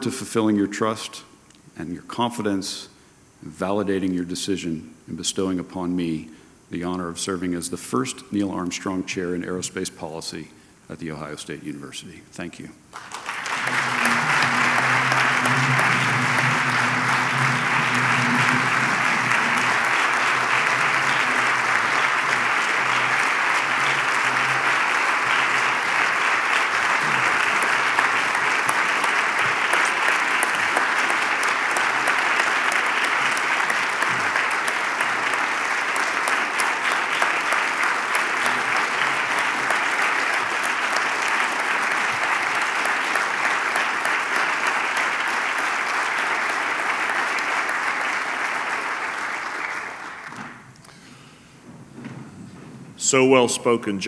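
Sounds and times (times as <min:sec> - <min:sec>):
audience applauding: 0:12.9 - 0:51.2.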